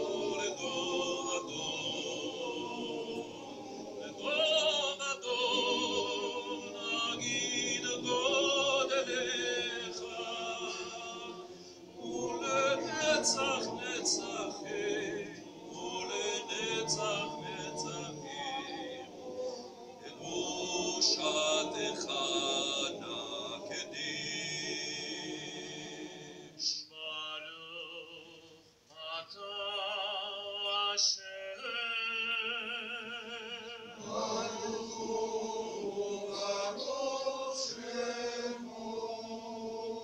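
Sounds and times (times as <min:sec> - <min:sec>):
male choir singing: 0:00.0 - 0:28.2, 0:29.0 - 0:40.0
tenor voice singing with vibrato: 0:00.0 - 0:40.0.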